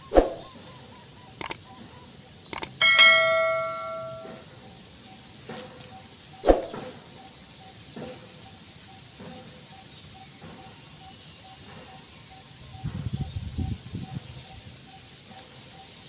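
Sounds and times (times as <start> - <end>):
quick double clicks: 1.4 - 1.7, 2.5 - 2.8
bright bell ding: 2.8 - 4.4.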